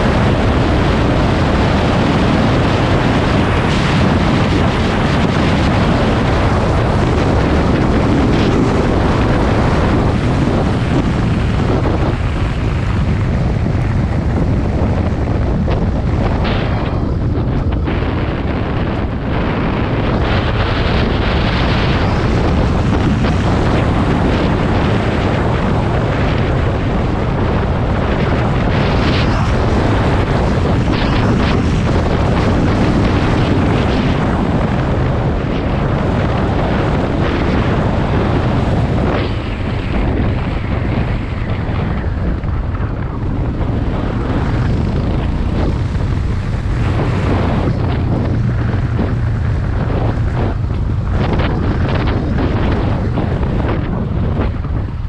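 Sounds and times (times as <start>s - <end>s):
motorcycle engine running: 0.0s - 55.0s
wind buffeting microphone: 0.0s - 55.0s.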